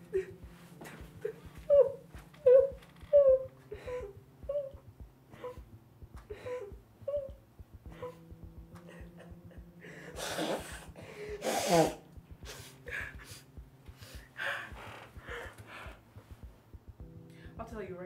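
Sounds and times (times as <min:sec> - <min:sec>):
men breathing hard through noses: 0:09.8 - 0:16.5.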